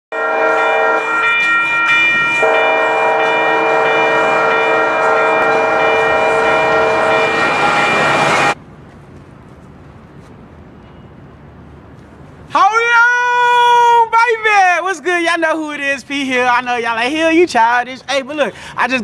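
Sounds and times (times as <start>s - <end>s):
locomotive air horn chord: 0.1s - 8.6s.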